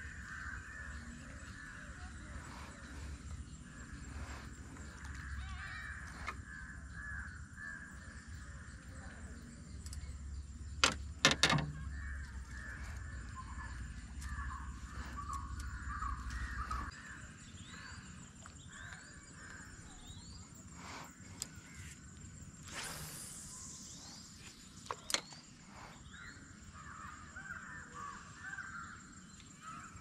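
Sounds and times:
birds calling: 0:00.0 - 0:30.0
sharp knocks: 0:10.8 - 0:11.8.

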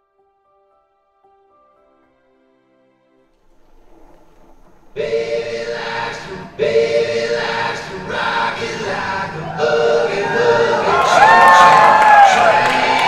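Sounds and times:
country swing song: 0:03.9 - 0:13.0
harmonized singing: 0:04.8 - 0:13.0.

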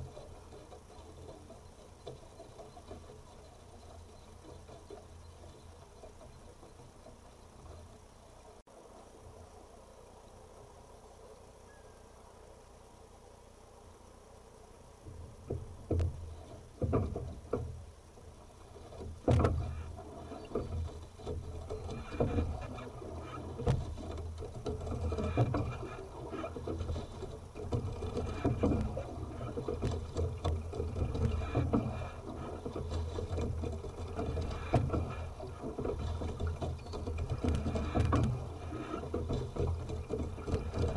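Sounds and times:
oars knocking in oarlocks: 0:15.0 - 0:40.9
oar blades splashing: 0:15.1 - 0:40.9.

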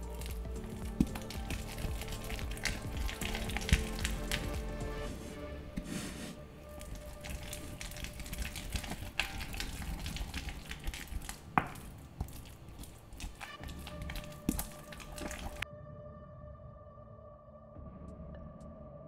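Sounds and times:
pestle mashing in mortar: 0:00.0 - 0:05.2, 0:05.8 - 0:15.6
faint background music: 0:00.0 - 0:19.0.

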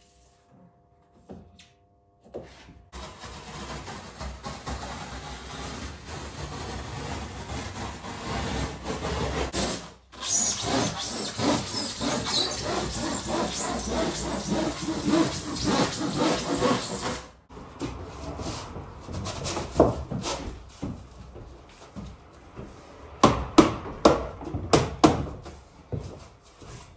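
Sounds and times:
saw cutting foam board: 0:03.0 - 0:17.4.

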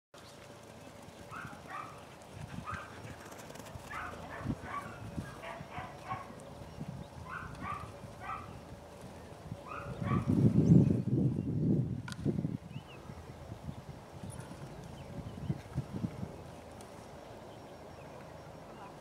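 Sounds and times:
hooves and paws thudding on grass: 0:00.2 - 0:11.0, 0:14.1 - 0:19.0.

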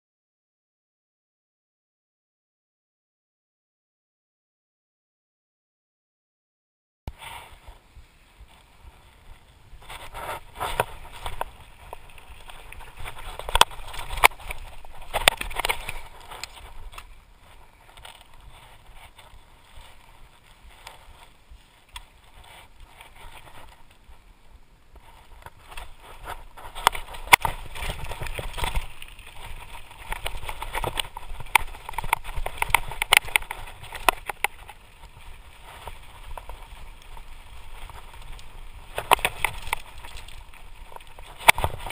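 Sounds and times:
tyres crunching over stones: 0:08.4 - 0:24.3, 0:24.9 - 0:41.9.

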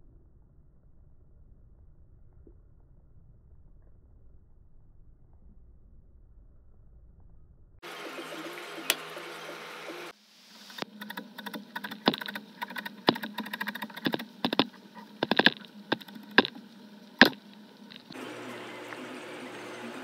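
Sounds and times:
steady background hum: 0:07.6 - 0:20.0.

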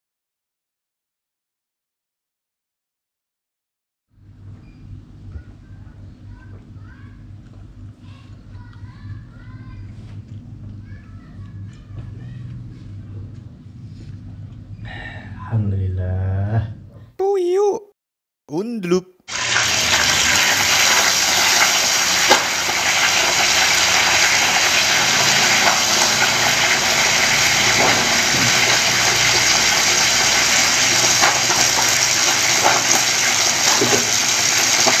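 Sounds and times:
hair dryer blowing: 0:19.3 - 0:31.9.

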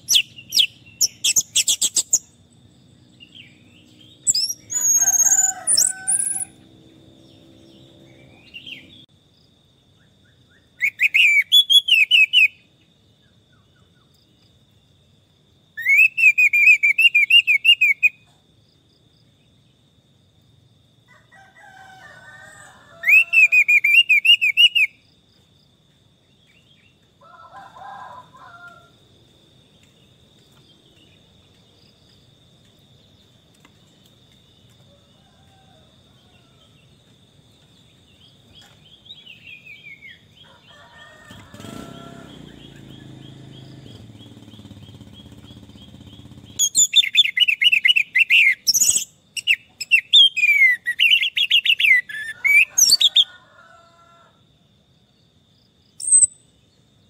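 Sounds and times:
bird calling: 0:04.2 - 0:06.6.

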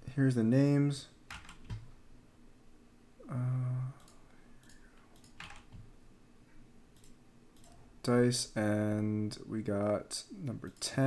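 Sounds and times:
keyboard and mouse clicks: 0:01.3 - 0:01.9, 0:04.0 - 0:05.9, 0:07.0 - 0:07.8
person vocal sound: 0:03.2 - 0:04.0.

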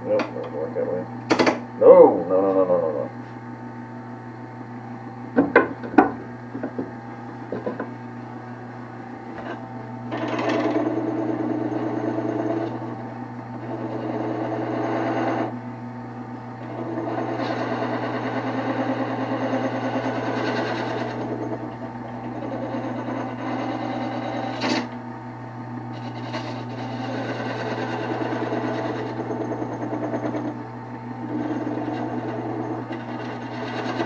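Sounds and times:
wood lathe humming: 0:00.0 - 0:03.4, 0:04.8 - 0:34.0
turning tool cutting wood: 0:09.3 - 0:15.6, 0:16.6 - 0:25.0, 0:25.9 - 0:34.0.

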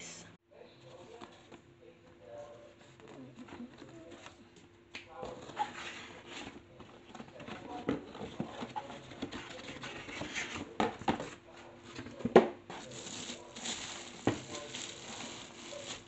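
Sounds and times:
cardboard packing being handled: 0:05.2 - 0:16.0
plastic bag rustling: 0:12.7 - 0:16.0.

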